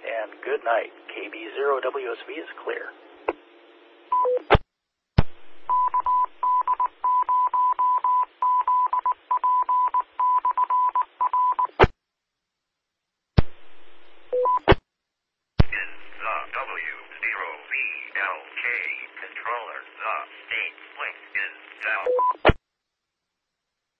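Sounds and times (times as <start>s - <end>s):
radio hiss: 0.0s - 3.0s, 15.6s - 22.4s
morse code beeping tone: 5.7s - 11.7s.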